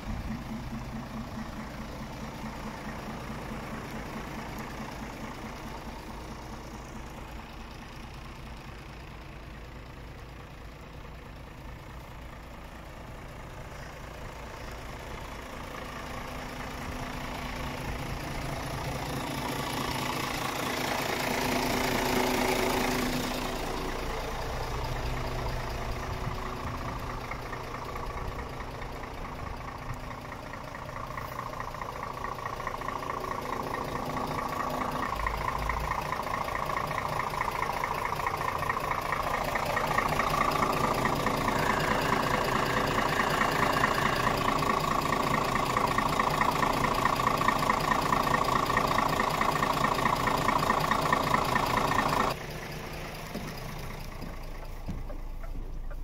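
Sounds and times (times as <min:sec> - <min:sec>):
truck diesel engine idling: 0:00.0 - 0:56.0.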